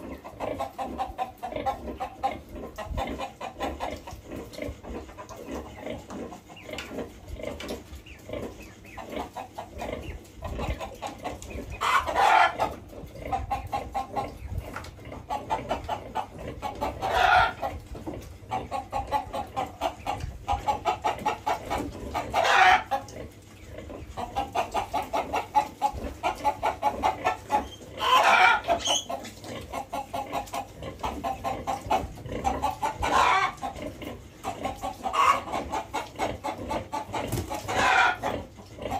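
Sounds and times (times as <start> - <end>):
farm animal short rhythmic calls: 0.0 - 38.9
farm animal long loud cry: 28.0 - 28.8, 33.0 - 33.6, 37.7 - 38.3.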